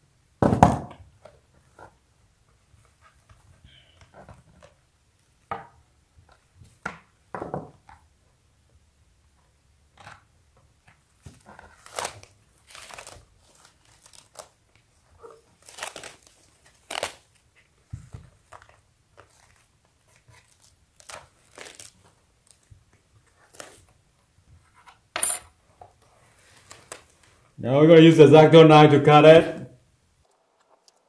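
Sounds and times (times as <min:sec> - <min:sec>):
packing sheet crinkling: 0:11.3 - 0:17.5, 0:18.4 - 0:24.0, 0:26.4 - 0:27.4.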